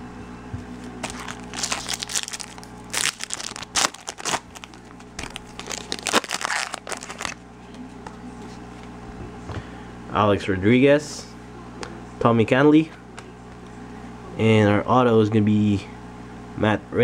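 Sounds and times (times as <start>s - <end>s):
foil wrapper crinkling: 0.9s - 7.4s
foil wrapper tearing: 1.0s - 7.4s.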